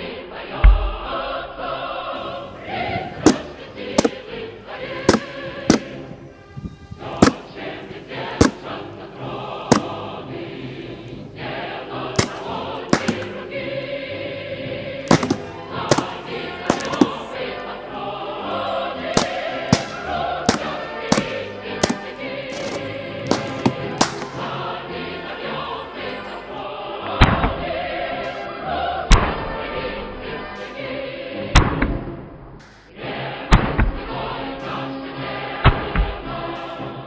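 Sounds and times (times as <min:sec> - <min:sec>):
choir singing a march: 0:00.0 - 0:37.0
small rockets firing: 0:03.0 - 0:04.3, 0:05.0 - 0:06.2, 0:07.1 - 0:07.6, 0:08.2 - 0:08.8, 0:09.7 - 0:10.0, 0:12.1 - 0:13.5, 0:15.1 - 0:17.4, 0:19.0 - 0:24.6.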